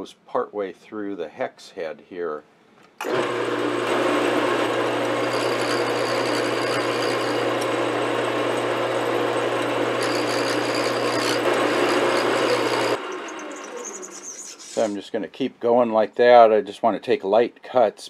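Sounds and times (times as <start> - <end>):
lathe tool scraping cut: 3.0 - 15.0
metal lathe whirring: 3.0 - 15.0.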